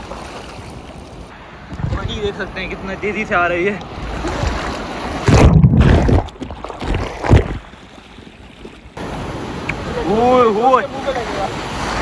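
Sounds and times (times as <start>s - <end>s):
sea waves breaking: 0.0s - 12.0s
wind on microphone: 1.6s - 2.4s, 3.9s - 7.7s.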